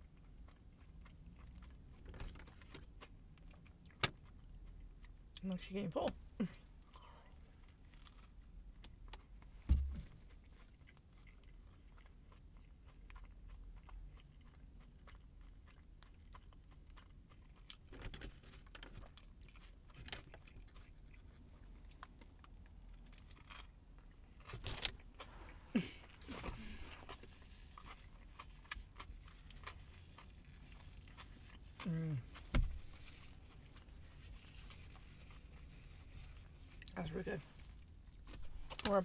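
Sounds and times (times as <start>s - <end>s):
chewing sandwich: 0.0s - 5.4s, 6.1s - 39.0s
low thump: 9.7s - 10.1s.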